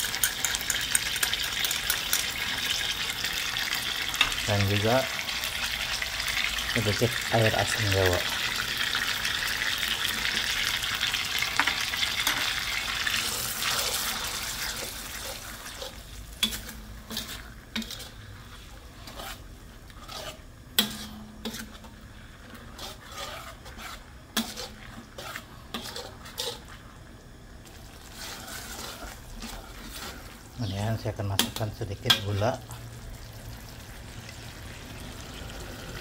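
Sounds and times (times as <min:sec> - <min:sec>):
sauce sizzling in a wok: 0:00.0 - 0:36.0
metal spatula scraping a wok: 0:10.0 - 0:27.0, 0:27.7 - 0:30.8.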